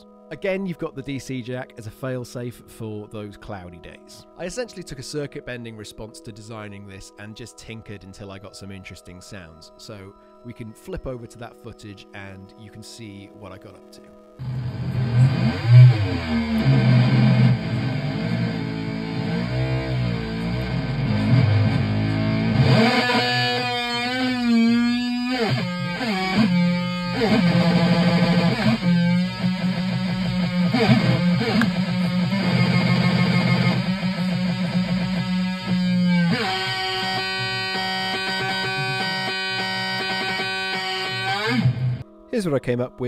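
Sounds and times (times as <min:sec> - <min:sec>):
buzzing electronic synth tones: 0:14.4 - 0:42.0.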